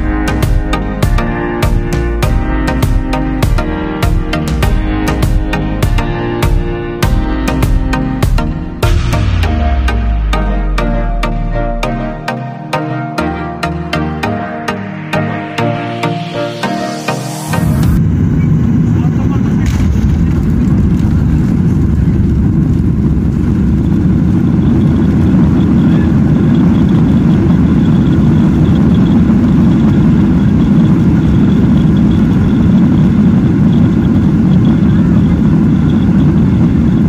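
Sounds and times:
faint high whine: 14.6s - 37.0s
jet airliner cabin rumble: 17.5s - 37.0s.

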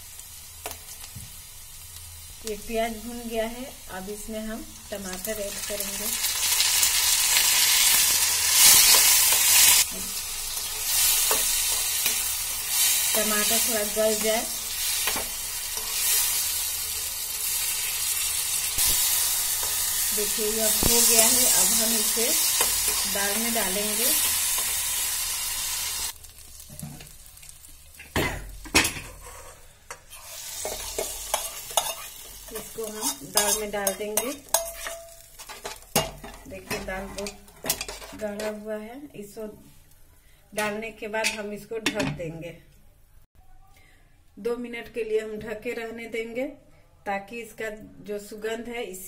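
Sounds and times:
tomatoes sizzling in hot oil: 0.0s - 38.6s
steel spoon stirring: 10.6s - 20.1s, 29.0s - 38.2s
metal clanks and scrapes: 28.0s - 32.1s.

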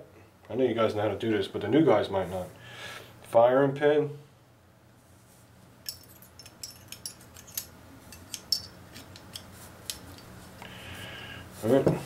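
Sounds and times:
metal parts clicking together: 5.8s - 10.3s.

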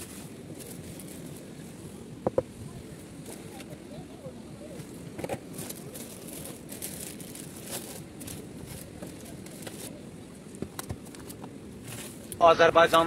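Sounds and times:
plastic bag crinkling: 5.4s - 9.9s.

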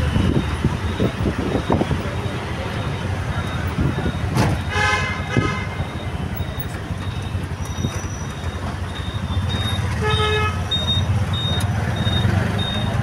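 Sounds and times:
auto-rickshaw engine running: 0.0s - 13.0s
city traffic: 0.0s - 13.0s
vehicle horn honking: 4.6s - 5.8s, 9.9s - 10.8s.

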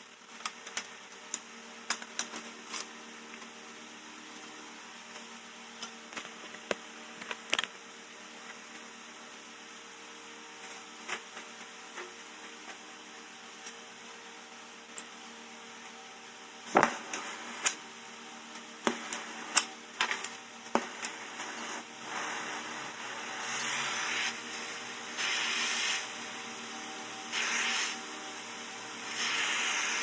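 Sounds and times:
torch hissing: 21.1s - 26.2s, 27.3s - 30.0s.

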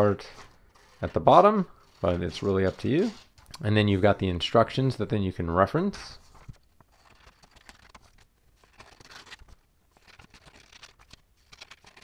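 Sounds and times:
paper rustling: 0.0s - 4.1s, 6.0s - 12.0s
scissors cutting paper: 6.9s - 12.0s.

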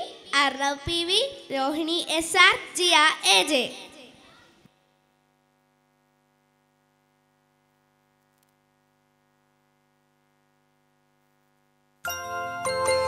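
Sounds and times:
faint mains hum: 0.0s - 12.7s
music with chiming bell notes: 12.0s - 13.0s.

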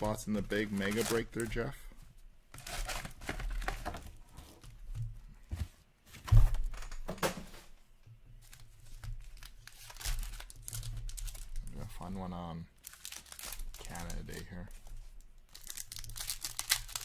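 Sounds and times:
foil wrappers crinkling and tearing: 0.0s - 1.7s, 8.4s - 11.9s, 12.8s - 14.7s, 15.4s - 17.0s.

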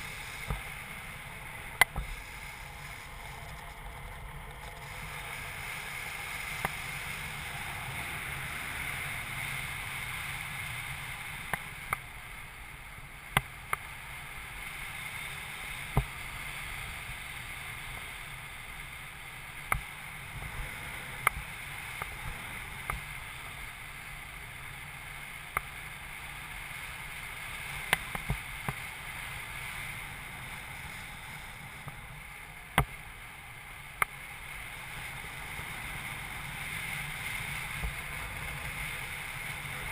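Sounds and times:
wind rushing over microphone: 0.0s - 12.1s, 34.5s - 39.9s.

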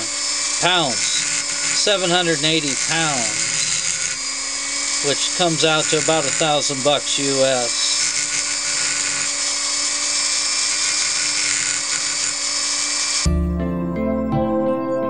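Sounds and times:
rotary tool grinding whine: 0.0s - 13.3s
guitar music: 13.3s - 15.0s.

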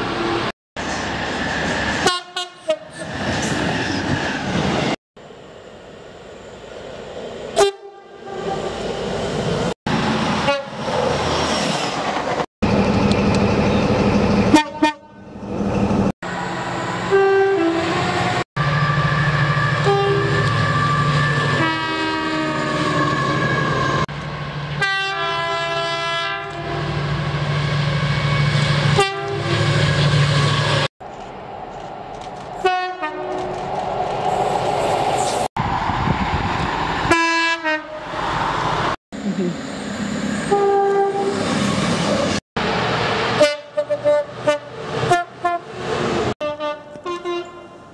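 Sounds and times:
train rumbling on tracks: 0.0s - 47.9s
train horn blasts: 7.6s - 8.7s, 14.5s - 15.2s, 17.1s - 18.3s, 19.8s - 20.5s, 21.6s - 23.3s, 24.8s - 26.9s, 29.0s - 29.7s, 32.6s - 33.4s, 37.1s - 38.0s, 40.5s - 41.4s, 43.4s - 45.7s, 46.4s - 47.9s.

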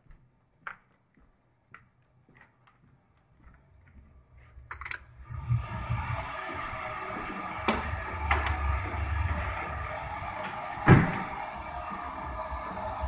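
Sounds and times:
faint clicks and taps: 0.0s - 5.0s
music: 5.2s - 13.0s.

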